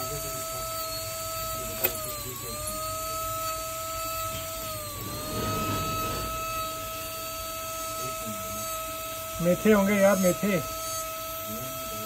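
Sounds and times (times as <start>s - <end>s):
rotary tool high whine: 0.0s - 12.0s
grinding on metal: 4.4s - 10.4s.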